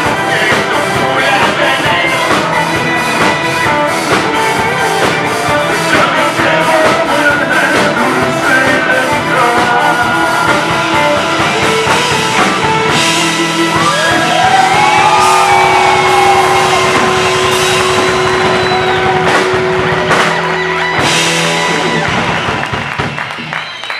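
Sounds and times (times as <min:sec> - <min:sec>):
bass: 0:00.0 - 0:23.9
drum kit: 0:00.0 - 0:23.9
electric guitars: 0:00.0 - 0:23.9.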